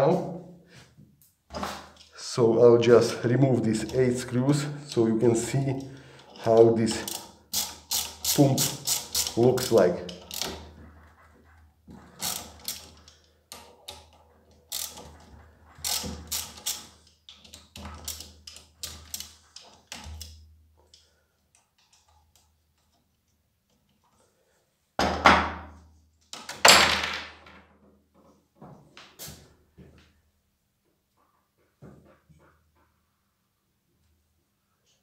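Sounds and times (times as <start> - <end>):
ratchet wrench clicking: 7.0 - 10.6, 12.2 - 13.6, 14.7 - 15.1, 15.8 - 16.9.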